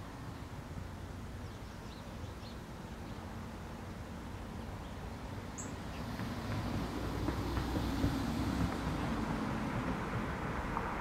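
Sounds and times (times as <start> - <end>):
faint bird chirps: 5.6 - 6.0.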